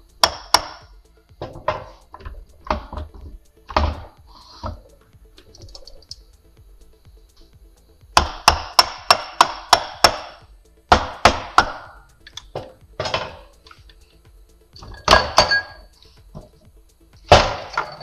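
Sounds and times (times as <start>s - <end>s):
metallic clank with ring: 14.8s - 15.9s, 17.6s - 18.0s.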